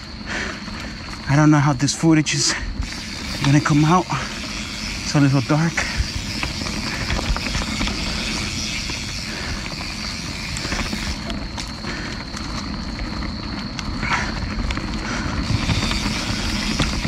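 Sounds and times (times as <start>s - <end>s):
bike clicks and rattles: 0.0s - 17.0s
wind noise: 0.0s - 17.0s
tyre rumble on dirt: 12.7s - 17.0s.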